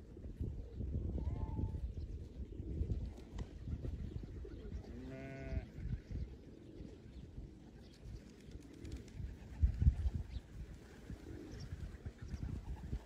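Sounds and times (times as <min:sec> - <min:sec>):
sheep or goat bleat: 0:05.0 - 0:05.7.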